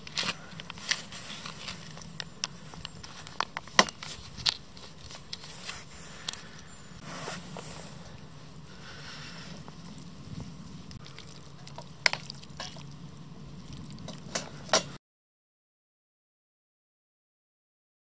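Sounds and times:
hot pan crackling and popping: 0.0s - 6.6s, 9.5s - 15.0s
plastic pouch crinkling: 0.0s - 6.6s
low steady hum: 0.0s - 15.0s.

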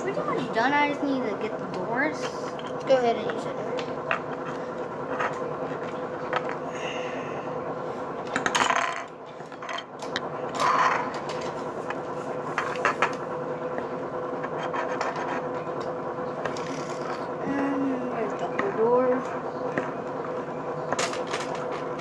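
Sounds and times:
steady hum: 0.0s - 22.0s
plastic toy pieces scraping on wood: 16.5s - 17.2s.

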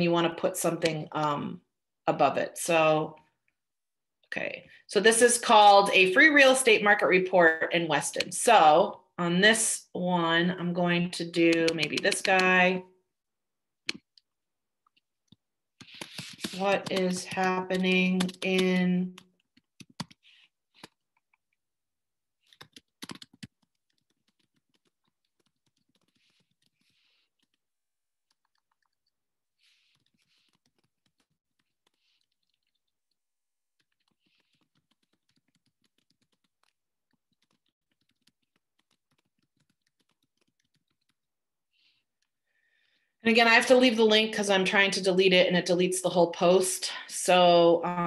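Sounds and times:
computer keyboard typing: 11.3s - 12.8s, 14.9s - 21.5s, 22.4s - 42.3s.

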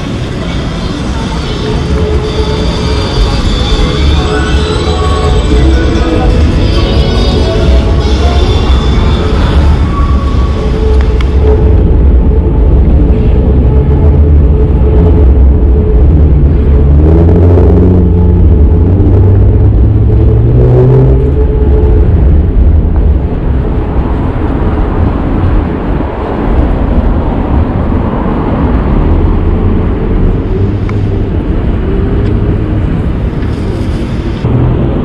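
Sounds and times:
city street traffic rumble: 0.0s - 35.0s
vehicle engine revving: 2.6s - 23.8s.

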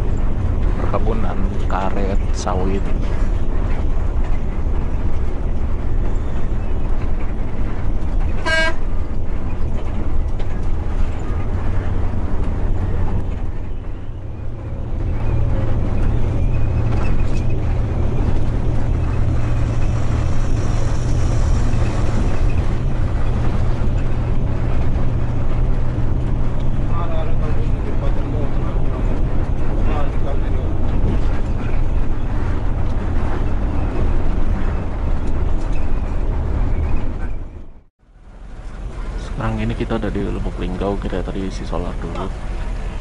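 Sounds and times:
bus engine running: 0.0s - 43.0s
road rumble: 0.0s - 43.0s
bus horn toot: 8.3s - 9.1s.

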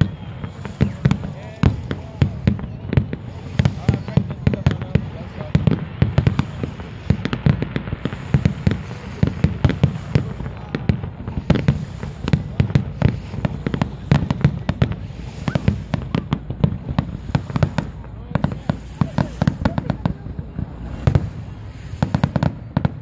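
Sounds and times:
firework shells bursting: 0.0s - 23.0s.

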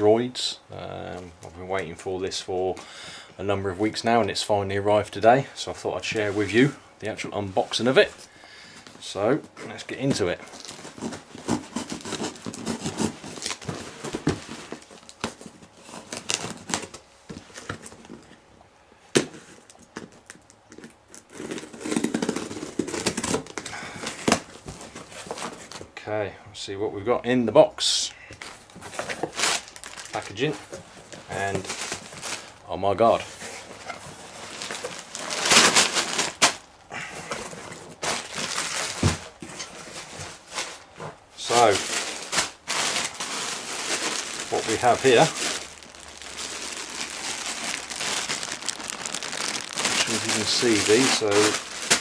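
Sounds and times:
plastic bags crinkling: 9.7s - 18.3s, 28.4s - 52.0s.

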